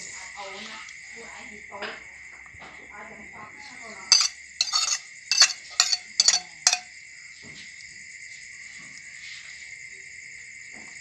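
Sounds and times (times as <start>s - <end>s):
crickets chirring: 0.0s - 11.0s
metal ladle clinking against pot: 4.1s - 6.9s.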